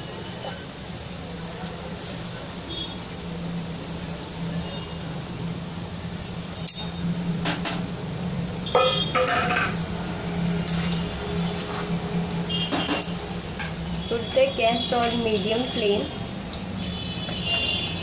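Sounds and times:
potatoes frying: 0.0 - 18.0
metal spoon clinking on pan: 6.5 - 7.1, 8.7 - 9.8.

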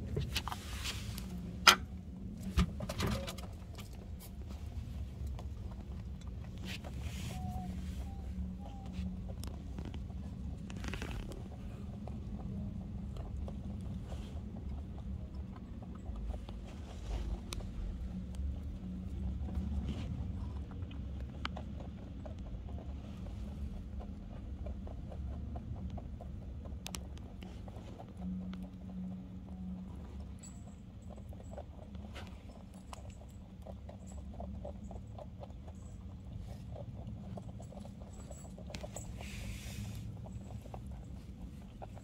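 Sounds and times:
rabbits crunching pellets: 0.0 - 42.0.

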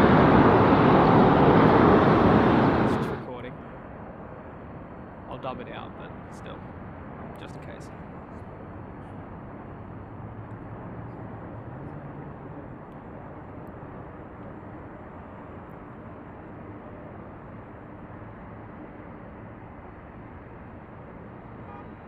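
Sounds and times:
low hum: 0.0 - 3.3
distant jet aircraft rumble: 0.0 - 22.0.

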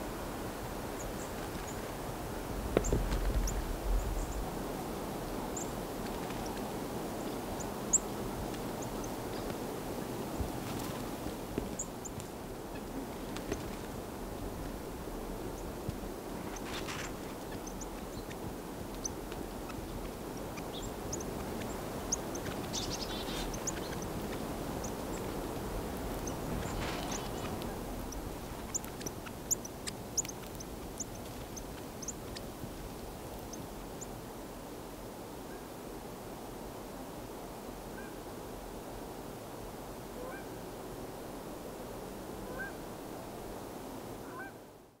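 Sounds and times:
low background rush: 0.0 - 43.9
steady outdoor hiss: 0.0 - 45.0
bird chip calls: 19.0 - 25.4, 26.2 - 32.5.

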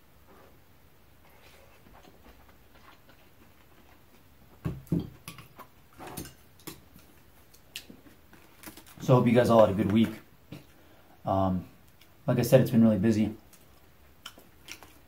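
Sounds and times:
close-miked chewing: 1.2 - 4.6, 13.5 - 15.0.

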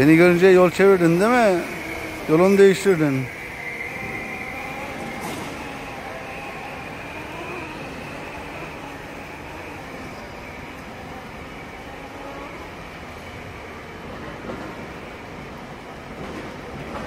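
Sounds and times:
floor-scrubbing robot motors droning: 0.0 - 13.4.

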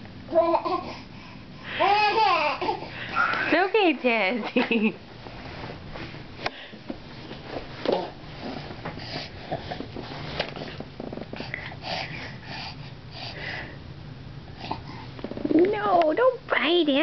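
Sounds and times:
low steady hum: 0.0 - 17.0
baby sniffing and snuffling: 8.4 - 13.7.

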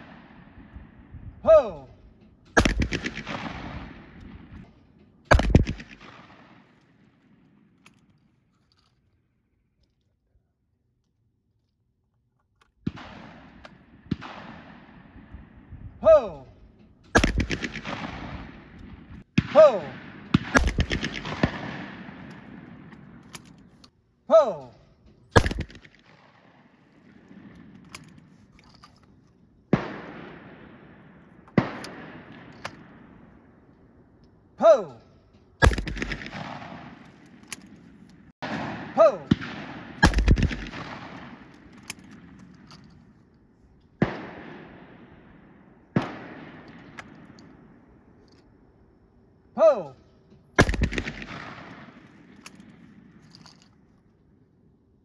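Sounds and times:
shotgun blasts with echo: 0.0 - 7.8, 12.8 - 23.7, 24.3 - 28.3, 29.6 - 33.7, 35.6 - 42.6, 43.9 - 48.0, 50.5 - 53.3
sharp crack: 2.4 - 4.0, 5.3 - 6.6, 17.2 - 22.5, 35.6 - 42.9, 50.6 - 52.8.

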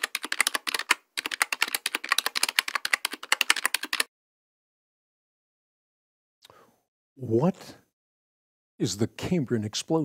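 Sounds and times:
keyboard typing: 0.0 - 4.1.

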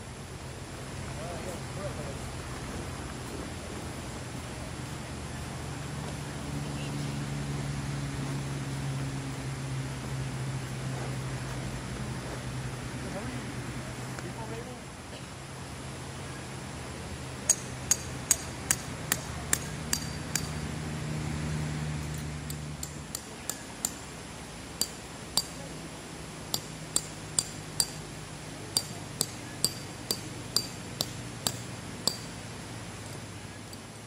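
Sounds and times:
hammer striking metal tent pegs: 17.5 - 20.6, 22.1 - 24.1, 24.8 - 25.6, 26.5 - 28.1, 28.7 - 32.4.

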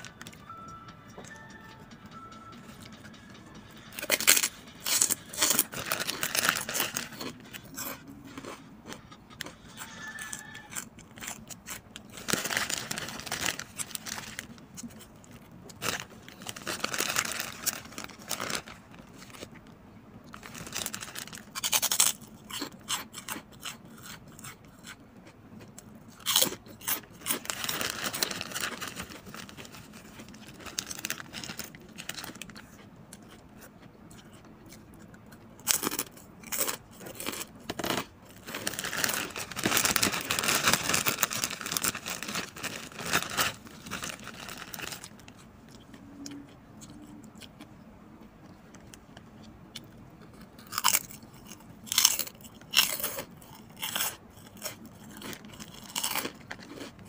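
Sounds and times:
crunching pork rinds: 3.6 - 57.0
plastic bag crinkling: 4.0 - 8.5, 9.8 - 19.5, 20.3 - 22.2, 27.2 - 32.6, 35.7 - 45.4.

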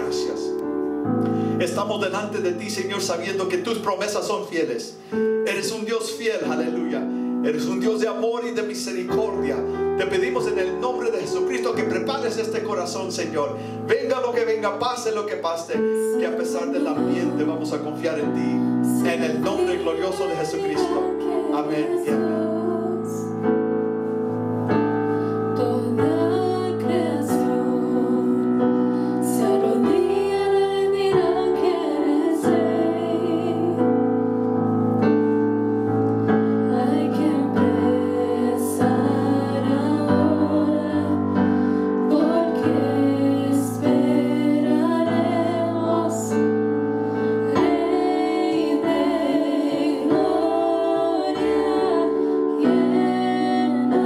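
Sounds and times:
keyboard chords: 0.0 - 54.0
women singing worship song: 15.8 - 23.6, 25.1 - 34.6, 36.2 - 54.0.

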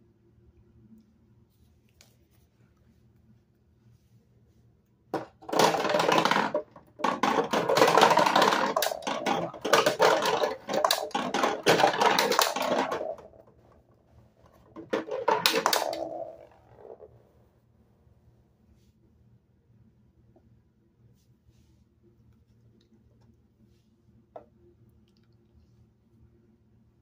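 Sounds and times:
plastic balls rattling down chutes: 5.2 - 17.2.

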